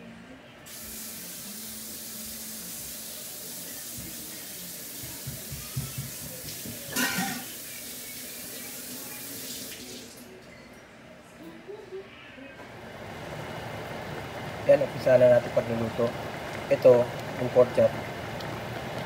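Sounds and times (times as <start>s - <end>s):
tap running into sink: 4.9s - 7.4s
soft knocks: 5.1s - 6.9s.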